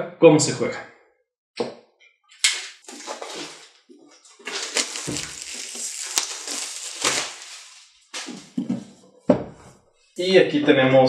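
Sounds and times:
plastic wrap crinkling: 2.6 - 8.6.

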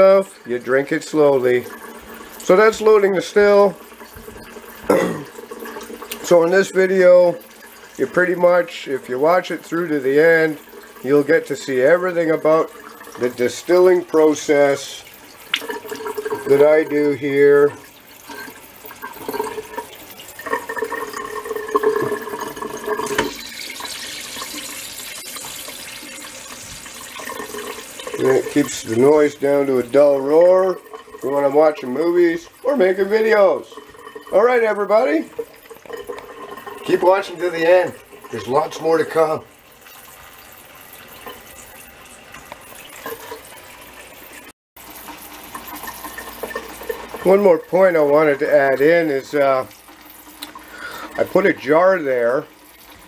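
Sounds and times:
water running into steel sink: 0.0 - 53.0.

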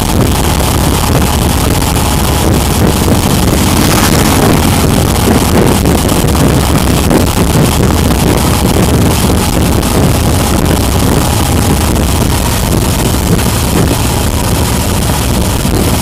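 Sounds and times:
motorcycle engine running: 0.0 - 16.0
wind on microphone: 0.0 - 16.0.

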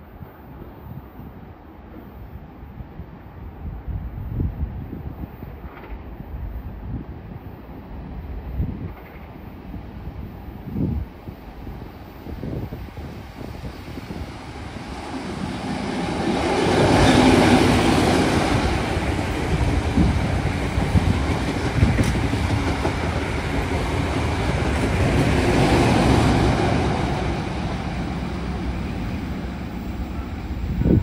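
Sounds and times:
train engine passing: 7.9 - 31.0.

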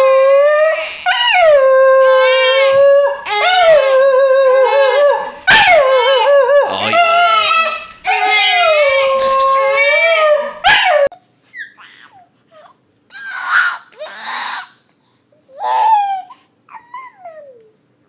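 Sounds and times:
newborn crying: 0.0 - 10.5, 11.5 - 14.8
dog howling: 0.0 - 11.1
baby squealing and laughing: 5.7 - 10.3, 11.5 - 14.7, 15.5 - 17.6
baby babbling: 11.5 - 14.7, 15.5 - 17.8.

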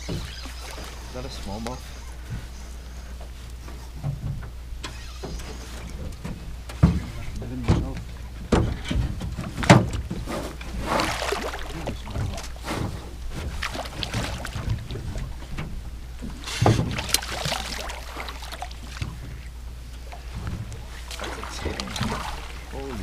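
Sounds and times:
low steady rumble: 0.0 - 23.0
knocks on metal boat: 6.2 - 10.2
fish splashing at the surface: 10.7 - 15.0, 16.6 - 19.2, 20.1 - 23.0.

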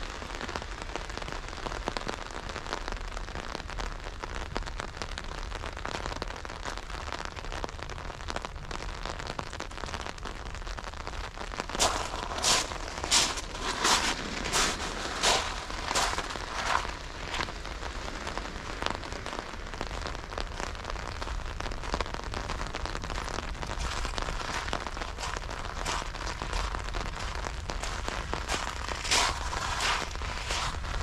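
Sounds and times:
rain on hard surfaces: 0.0 - 31.0
louder rain taps: 11.6 - 31.0.

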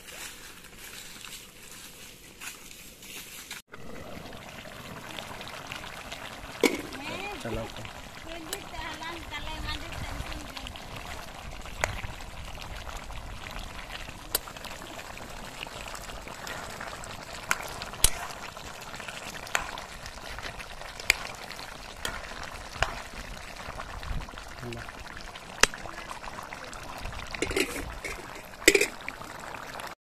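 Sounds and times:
curry bubbling and sloshing: 3.7 - 30.0
ladle clinking against metal pan: 27.4 - 29.0.

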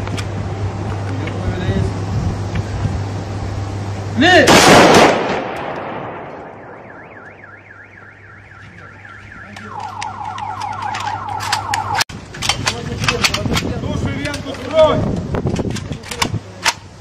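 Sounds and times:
car alarm: 6.5 - 12.0
sharp clicks: 9.4 - 14.5.

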